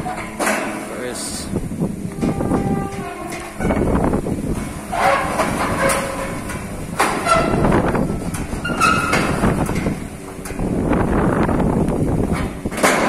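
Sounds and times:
metal folding door rumbling and rattling: 0.0 - 13.0
short metal squeals: 2.1 - 4.2, 4.8 - 10.4.

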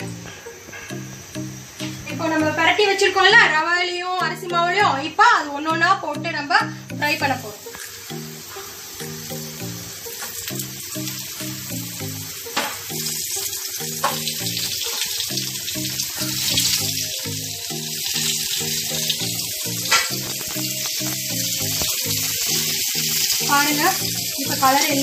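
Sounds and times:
background music: 0.0 - 25.0
fish sizzling in oil: 6.6 - 25.0.

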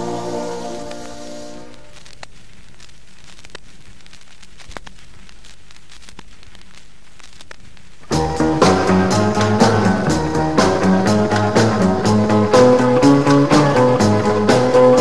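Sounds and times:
song ending: 0.0 - 1.8, 8.1 - 15.0
record surface hiss and crackles: 0.0 - 15.0.

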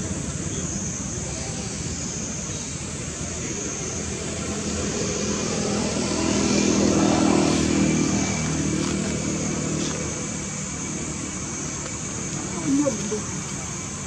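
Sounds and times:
vehicle engine passing by: 3.6 - 11.8.

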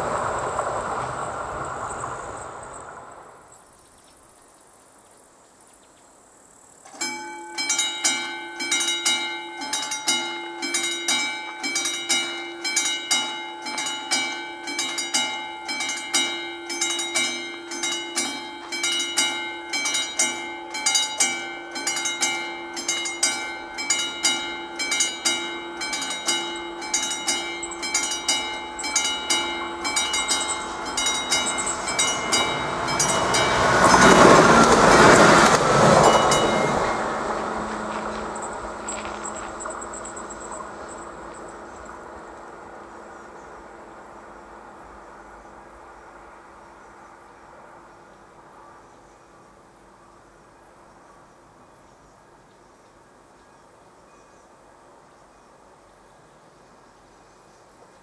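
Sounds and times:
train passing: 0.0 - 3.8, 6.9 - 51.8
level crossing bell ringing: 6.9 - 42.4.

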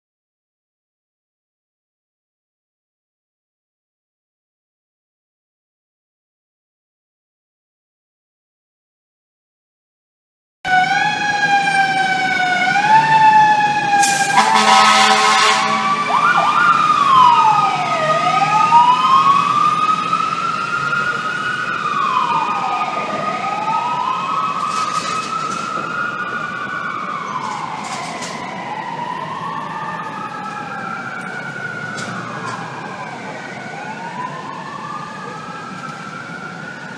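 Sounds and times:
fire truck sirens: 10.7 - 36.9
loud horn blast: 14.0 - 16.3.

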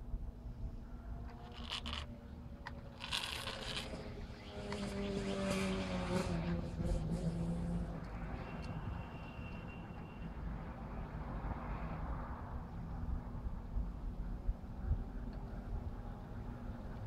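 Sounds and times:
low steady drone: 0.0 - 9.0
plastic toy trucks scraping sand: 1.4 - 2.1, 3.0 - 4.1.

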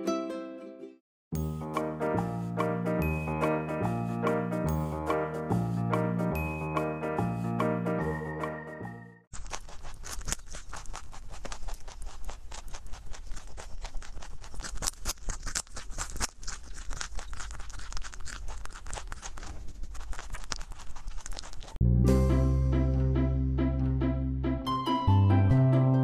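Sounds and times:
rabbit crunching carrot: 9.3 - 21.8.

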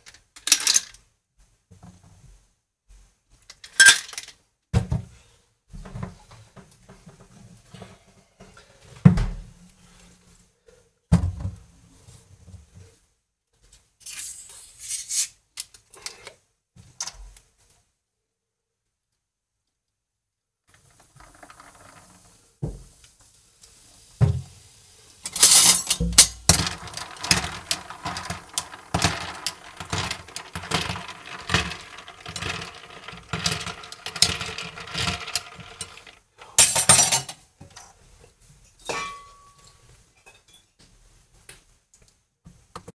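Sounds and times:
ice rattling: 20.8 - 22.4, 25.3 - 36.2.

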